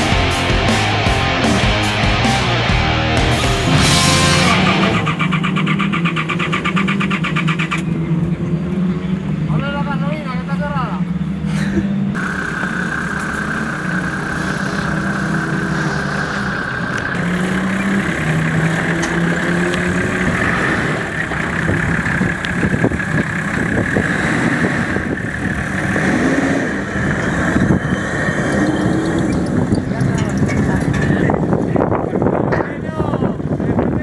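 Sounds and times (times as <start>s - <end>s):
engine revving: 0.0s - 10.1s, 12.1s - 32.3s
high whine: 0.0s - 11.5s, 12.1s - 34.0s
vehicle knocks and clatter: 28.9s - 33.0s.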